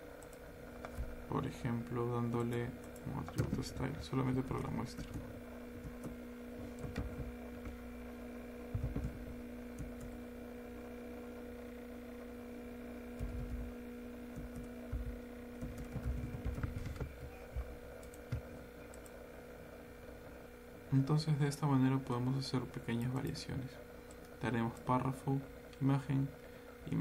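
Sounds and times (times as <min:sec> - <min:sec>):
low electrical hum: 0:00.0 - 0:27.0
keyboard keystrokes: 0:02.3 - 0:03.9, 0:04.5 - 0:07.8, 0:08.7 - 0:10.2, 0:13.2 - 0:13.7, 0:14.3 - 0:17.4.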